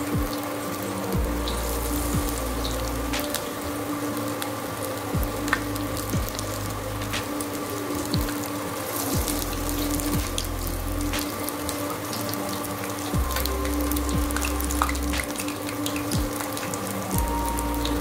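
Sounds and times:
low hum: 1.0s - 4.2s, 9.1s - 12.5s.

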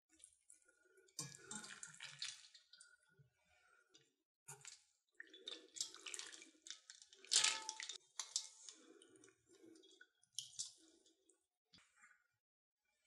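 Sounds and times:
water splashing and dripping: 1.2s - 2.9s, 4.6s - 11.1s.

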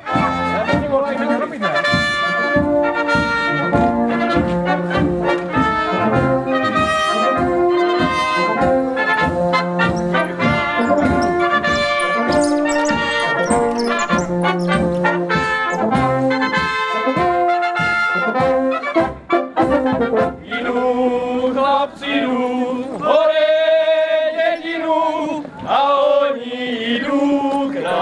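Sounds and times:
brass band playing folk tune: 0.0s - 28.0s.

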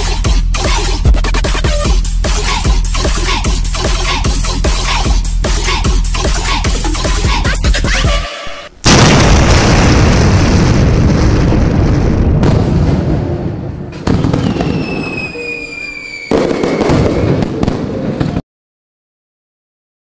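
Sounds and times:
sudden impact hits: 8.8s - 14.2s
loud explosion boom: 8.8s - 15.3s, 16.3s - 18.4s
falling whistle: 14.2s - 17.4s.

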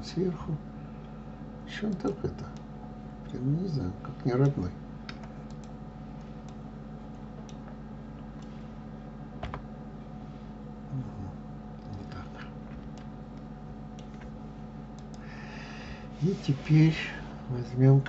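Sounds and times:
steady low hum: 0.0s - 18.0s
computer mouse clicks: 4.4s - 5.8s, 7.4s - 7.8s, 12.8s - 14.3s, 15.0s - 15.3s.

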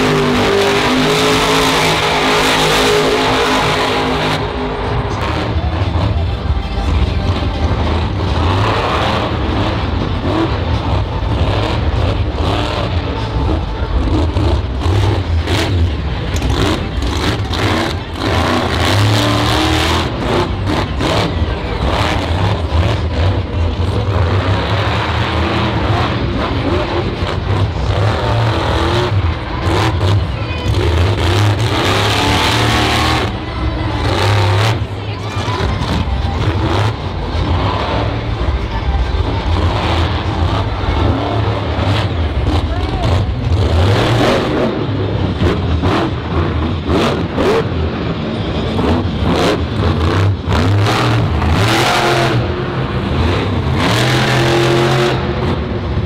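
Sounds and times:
monster truck engine revving: 0.0s - 56.0s.

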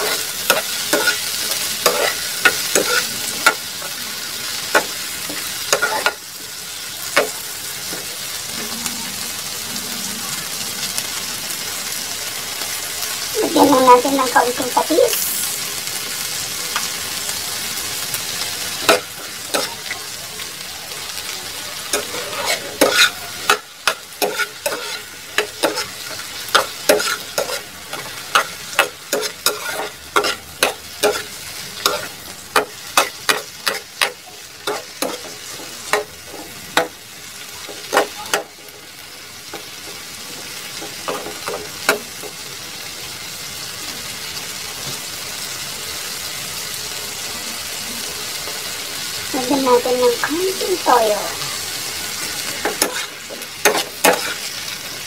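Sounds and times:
spatula scraping pan: 0.0s - 6.2s, 18.8s - 20.1s, 21.8s - 37.0s, 49.5s - 55.0s
vegetables sizzling in frying pan: 0.0s - 55.0s.

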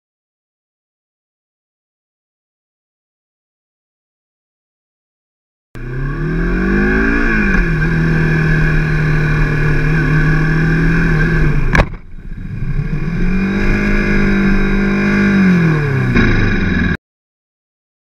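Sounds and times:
motorcycle engine revving: 5.8s - 17.0s
motorcycle striking car bang: 11.6s - 12.2s, 16.0s - 17.0s.

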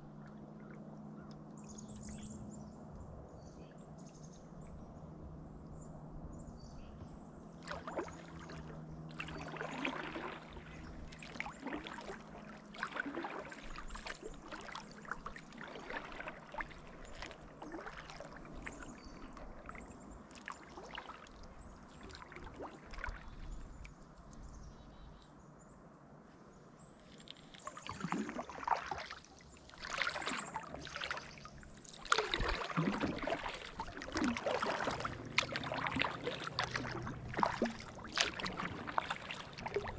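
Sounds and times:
kayak paddle strokes: 7.6s - 24.5s, 27.1s - 39.9s
water splashes and drips: 7.6s - 24.6s, 27.0s - 39.9s.

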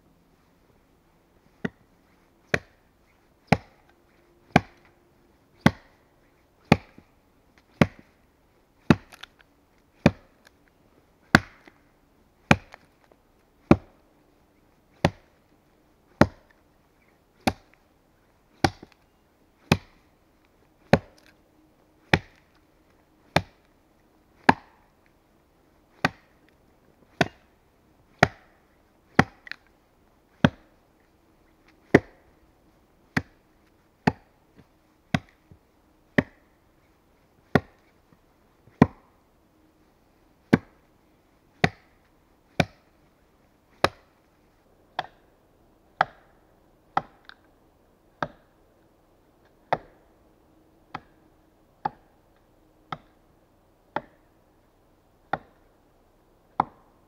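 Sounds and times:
axe chopping into log: 3.5s - 3.8s, 4.5s - 4.8s, 5.6s - 6.0s, 8.9s - 9.3s, 10.0s - 10.3s, 11.3s - 11.7s, 12.5s - 12.9s, 15.0s - 15.3s, 16.2s - 16.5s, 17.4s - 17.7s, 18.6s - 18.9s, 19.7s - 20.0s, 20.8s - 21.3s, 22.1s - 22.4s, 23.3s - 23.6s, 24.4s - 24.8s, 26.0s - 26.3s, 27.2s - 27.4s, 28.2s - 28.6s, 29.2s - 29.6s, 30.4s - 30.7s, 31.8s - 32.2s, 33.1s - 33.4s, 34.0s - 34.3s, 35.1s - 35.4s, 36.2s - 36.4s, 37.5s - 37.8s, 38.8s - 39.0s, 40.5s - 40.7s, 41.6s - 41.9s, 42.6s - 42.8s, 43.8s - 44.1s, 46.0s - 46.3s, 47.0s - 47.4s, 48.2s - 48.5s, 49.7s - 50.0s, 54.0s - 54.2s, 56.6s - 56.8s.

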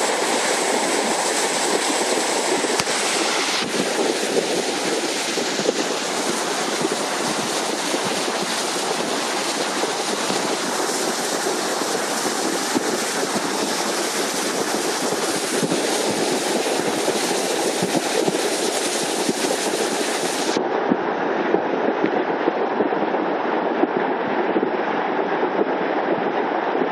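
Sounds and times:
floodwater rushing: 0.0s - 20.6s.

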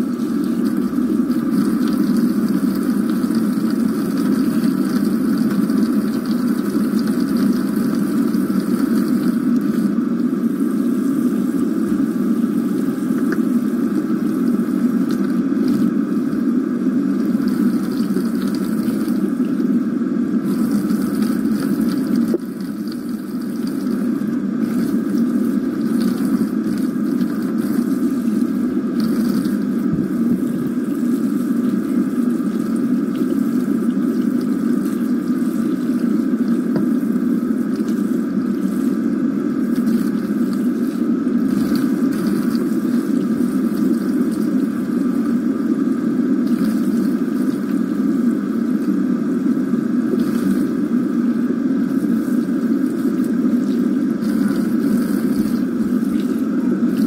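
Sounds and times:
faucet water splashing into sink: 0.0s - 9.9s.

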